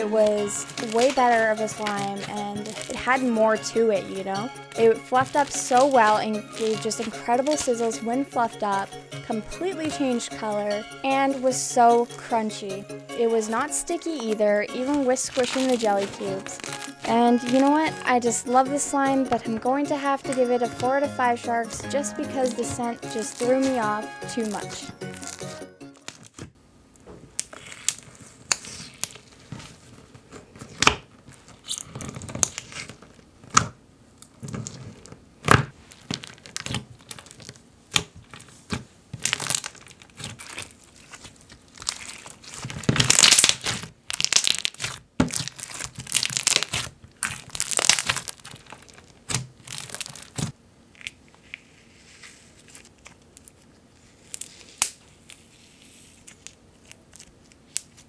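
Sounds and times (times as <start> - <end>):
jelly cubes crunching: 0.0 - 8.8, 13.5 - 18.8, 22.0 - 26.4, 35.8 - 51.2
slime crackling and squelching: 0.0 - 26.4, 27.4 - 58.0.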